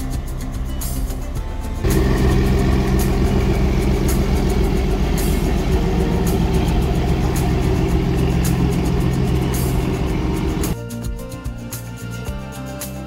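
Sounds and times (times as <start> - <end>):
boat diesel engine running: 0.2 - 10.8
propeller churning water: 1.8 - 10.8.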